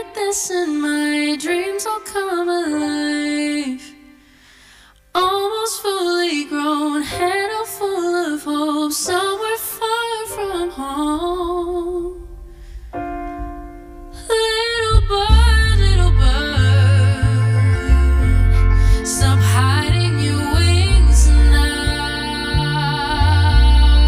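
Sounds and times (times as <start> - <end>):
woman singing: 0.0 - 4.2, 5.1 - 12.5, 14.1 - 24.0
soft electric keyboard: 15.4 - 24.0.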